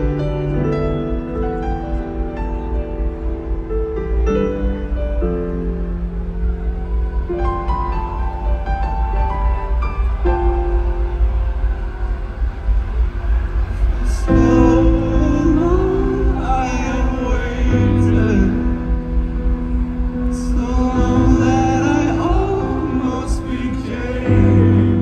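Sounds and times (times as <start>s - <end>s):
keyboard chords: 0.0s - 25.0s
low rumble: 0.0s - 25.0s
man singing: 14.0s - 19.2s, 20.2s - 25.0s.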